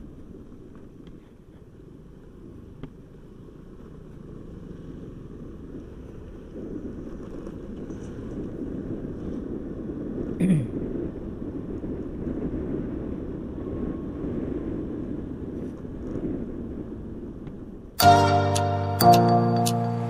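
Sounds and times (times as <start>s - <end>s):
road and vehicle noise: 0.0s - 20.0s
wind buffeting microphone: 5.1s - 18.0s.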